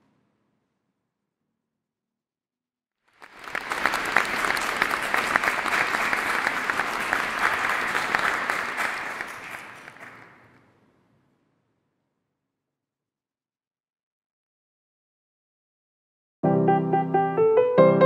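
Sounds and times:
audience applauding: 0:03.0 - 0:10.6.

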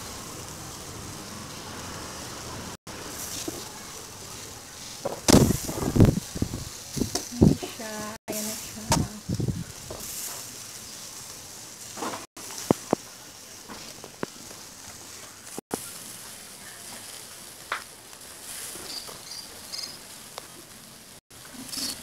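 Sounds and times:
meat sizzling on grill: 0:00.0 - 0:22.0
fat popping: 0:05.0 - 0:07.6.

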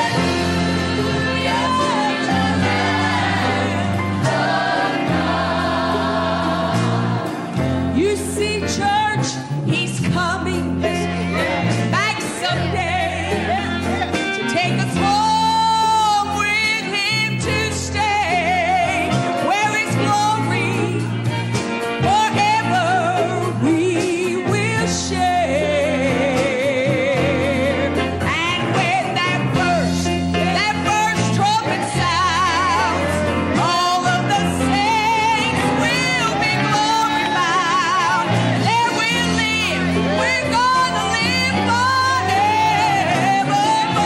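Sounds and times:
gospel choir singing: 0:00.0 - 0:09.2, 0:10.8 - 0:20.6, 0:28.6 - 0:44.0
band playing: 0:00.0 - 0:44.0
female lead vocalist singing: 0:22.0 - 0:44.0.

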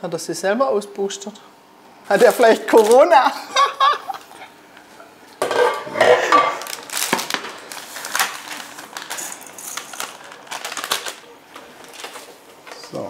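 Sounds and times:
pots and utensils clinking: 0:05.4 - 0:06.8.

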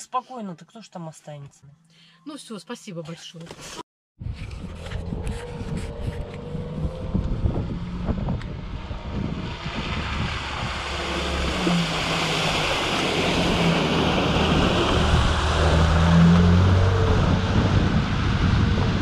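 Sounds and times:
water splashing around wheels: 0:05.0 - 0:19.0.

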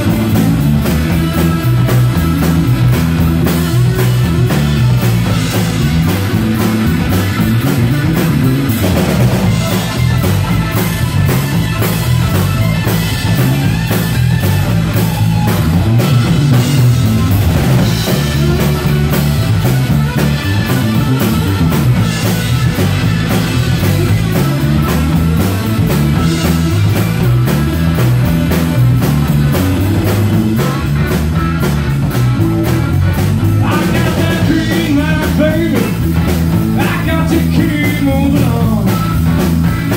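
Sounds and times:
drum kit beat: 0:00.0 - 0:39.9
electric bass: 0:00.0 - 0:39.9
electric guitar: 0:00.0 - 0:39.9.

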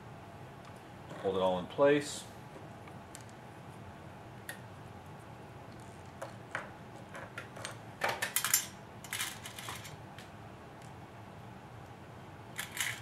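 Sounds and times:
small metal parts clinking: 0:07.6 - 0:10.0, 0:12.6 - 0:13.0.

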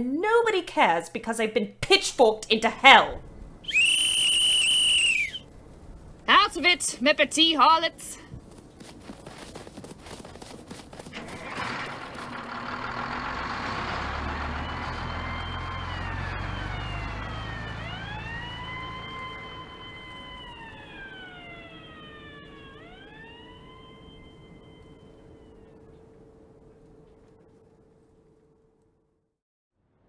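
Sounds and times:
rumbling noise: 0:02.7 - 0:07.3
wailing siren: 0:11.2 - 0:27.6.

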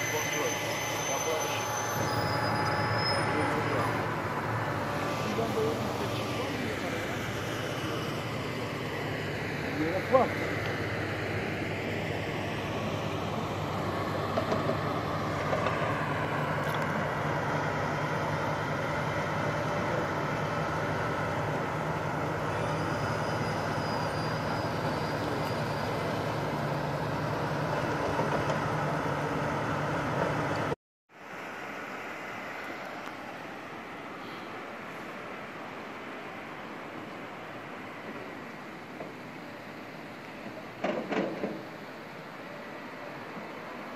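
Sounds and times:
diesel engine rumbling: 0:00.0 - 0:30.8.

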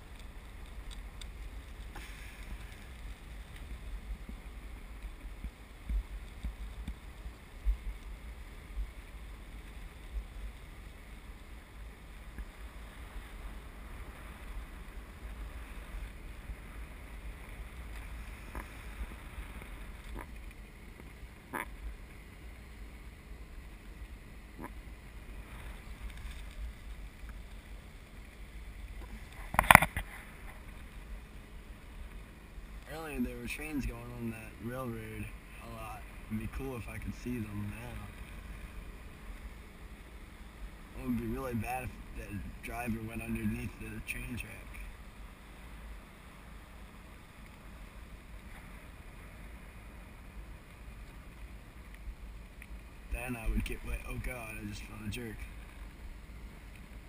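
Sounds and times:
faint clicks: 0:00.0 - 0:08.2, 0:50.6 - 0:52.8, 0:55.4 - 0:57.0.

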